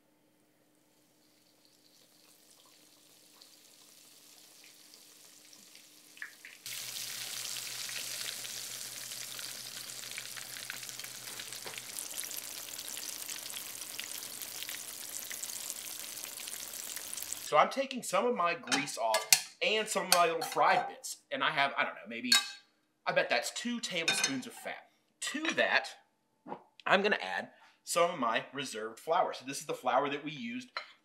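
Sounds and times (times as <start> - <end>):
steak sizzling in grease: 1.2 - 17.5.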